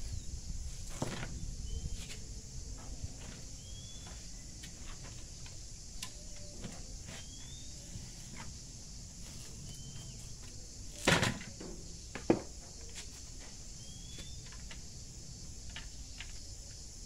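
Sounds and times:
bird chirping: 3.5s - 4.4s, 6.0s - 8.1s, 9.6s - 10.7s, 12.8s - 14.7s.

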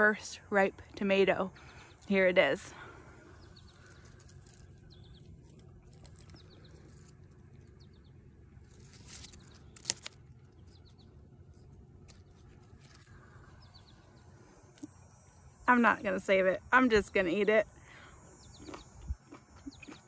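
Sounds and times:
rustling plant leaves: 1.6s - 14.1s.

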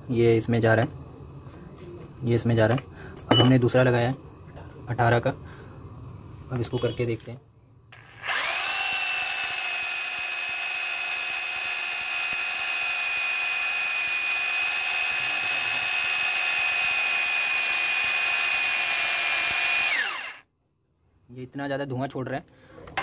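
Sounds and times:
electric drill boring into wood: 8.0s - 20.4s.

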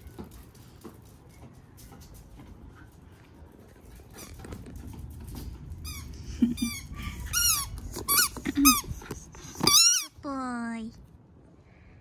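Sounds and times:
squeaky toy ball squeaking: 5.8s - 10.2s.

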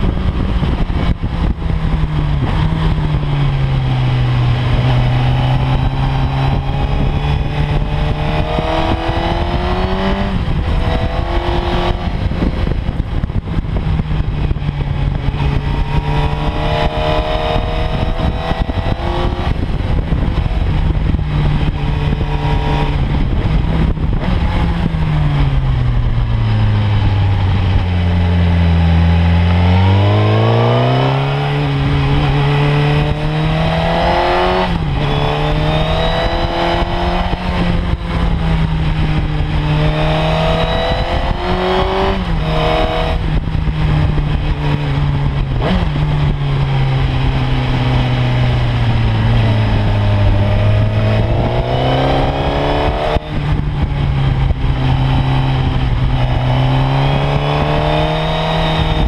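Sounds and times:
motorcycle engine: 0.0s - 59.0s.

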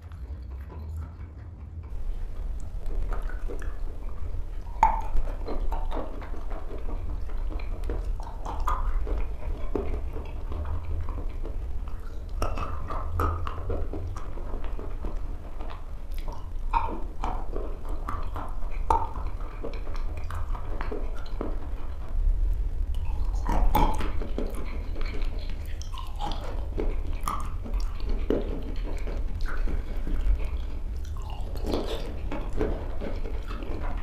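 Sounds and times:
low steady hum: 0.0s - 34.0s
chewing wet chalk crunches: 1.8s - 34.0s
wet mouth clicks: 1.9s - 22.2s, 22.8s - 34.0s.

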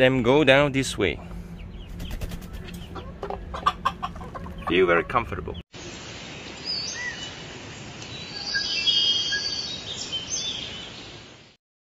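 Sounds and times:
birds whistling and trilling: 1.2s - 5.6s, 6.6s - 7.4s, 8.1s - 11.1s.

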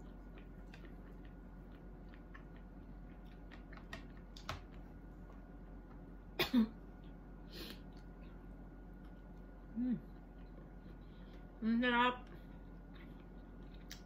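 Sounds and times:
mouth smacks while chewing: 12.5s - 14.0s.

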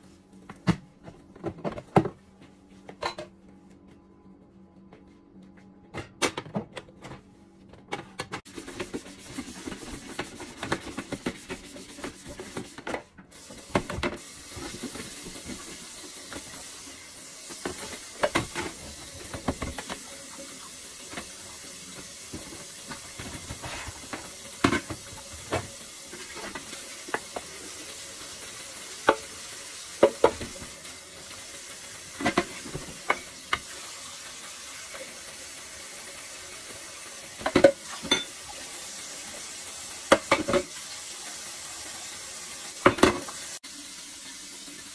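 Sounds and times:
dishes clinking and clunking: 2.9s - 3.4s, 37.4s - 38.4s
faucet water running into sink: 13.3s - 44.9s.

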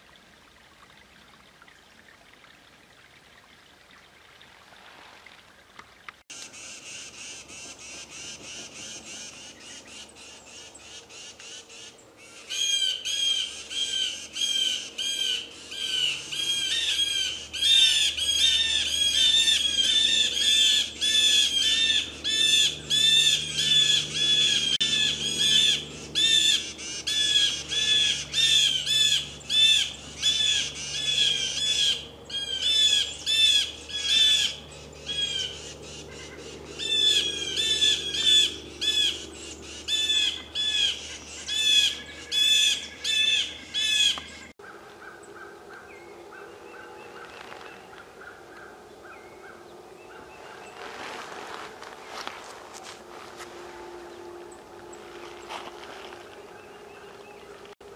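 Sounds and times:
woodland background: 0.0s - 57.9s
harsh animal calls: 12.5s - 50.8s.

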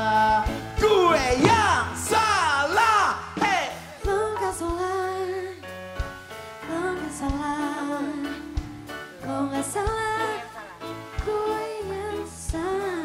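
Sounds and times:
musical accompaniment with bass: 0.0s - 13.0s
low beat: 0.4s - 5.1s
woman singing into microphone: 4.0s - 5.7s, 6.6s - 13.0s.

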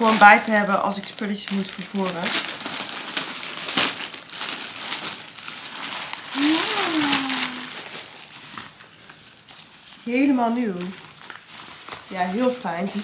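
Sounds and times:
plastic packaging crinkling: 0.0s - 13.0s
person saying ooh: 6.3s - 7.9s.

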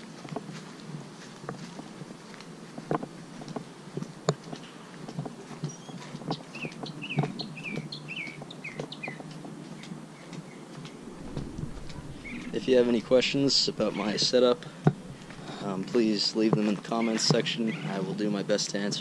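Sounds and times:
footsteps on grass and dirt: 0.0s - 10.0s, 10.7s - 17.5s
bird chirping: 10.2s - 15.9s.

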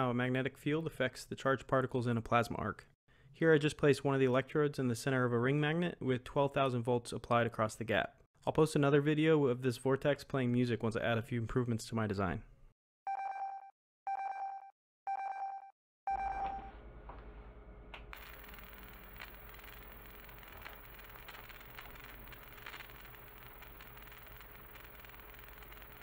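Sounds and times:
plasma arc humming and hissing: 18.2s - 26.0s.

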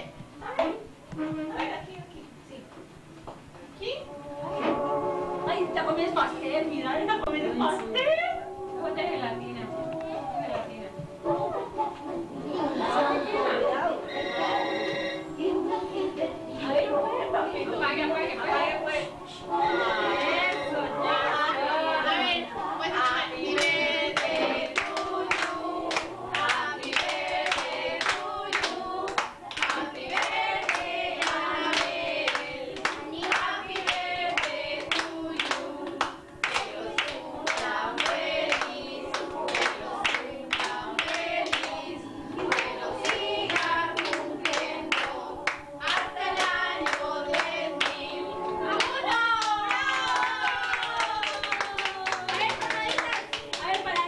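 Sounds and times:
people singing together: 4.1s - 54.0s
hand clapping in time: 23.6s - 41.8s, 42.4s - 48.0s.

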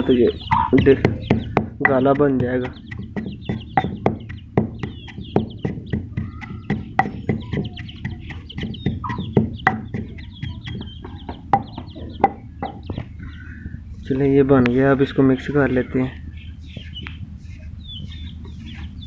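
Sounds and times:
birds calling: 0.0s - 19.0s
pestle pounding in stone mortar: 0.5s - 13.1s.

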